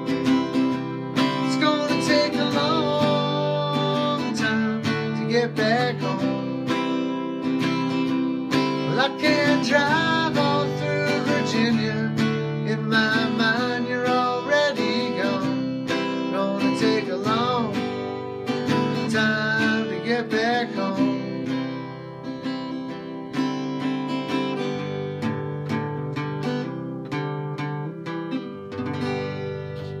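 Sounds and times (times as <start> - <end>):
strummed acoustic guitar: 0.0 - 30.0
wordless singing: 1.2 - 6.9, 8.7 - 18.0, 18.7 - 21.6.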